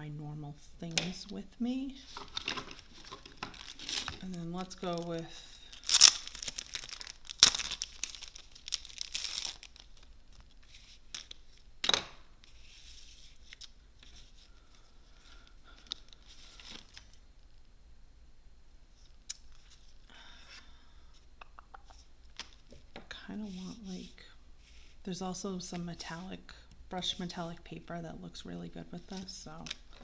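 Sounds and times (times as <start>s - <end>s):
paper rustling and crinkling: 2.0s - 11.6s.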